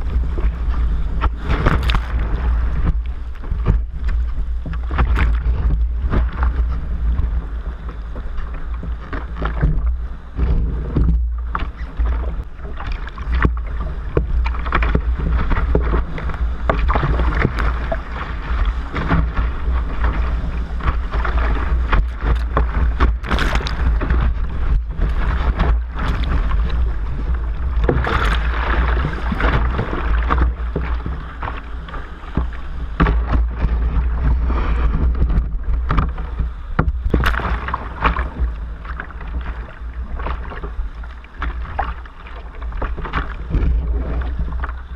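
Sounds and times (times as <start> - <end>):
low water rumble: 0.0 - 44.9
surf rushing and splashing: 0.0 - 44.9
sharp splashes: 37.0 - 39.6.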